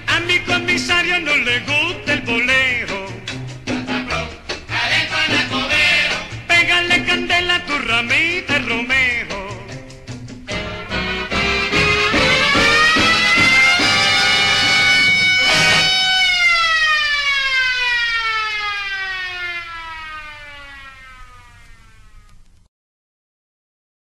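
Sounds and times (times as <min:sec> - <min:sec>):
band music: 0:00.0 - 0:16.4
siren-like tone sliding down: 0:12.0 - 0:22.4.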